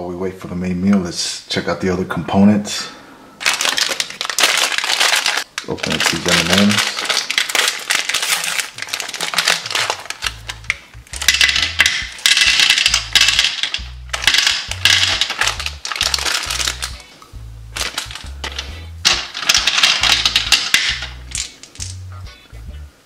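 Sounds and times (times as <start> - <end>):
candies pouring onto plastic tray: 3.4 - 16.9, 17.8 - 22.0
plastic packet crinkling: 3.4 - 17.1, 17.8 - 22.0
background music with bass line: 10.2 - 23.0.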